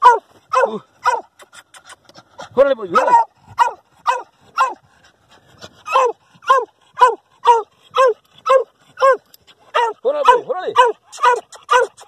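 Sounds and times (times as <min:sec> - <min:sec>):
dog barking from burrow: 0:00.0 - 0:01.3, 0:02.9 - 0:04.8, 0:05.9 - 0:12.0.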